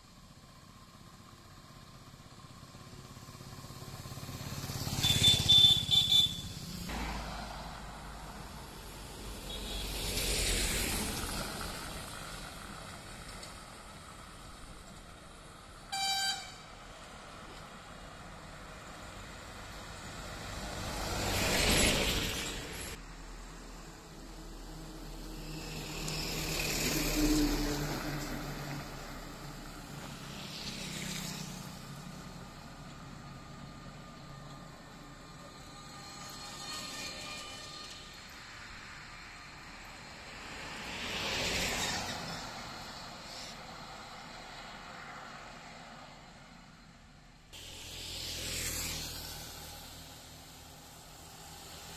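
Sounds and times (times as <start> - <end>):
hum of approaching traffic: 0.0 - 51.9
road and engine noise: 0.0 - 51.9
truck: 0.0 - 51.9
vehicle horn toot: 4.9 - 6.5, 15.9 - 16.7
passing vehicle engine: 18.6 - 38.4, 47.6 - 51.9.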